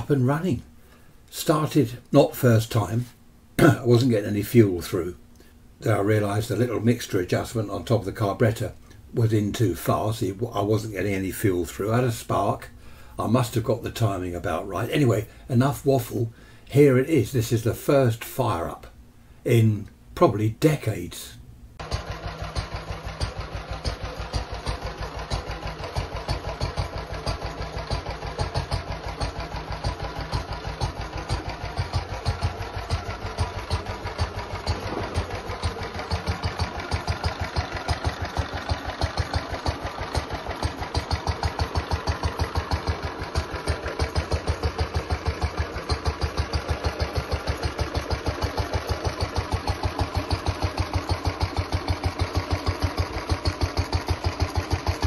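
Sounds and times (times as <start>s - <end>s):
stationary engine running: 21.8s - 55.0s.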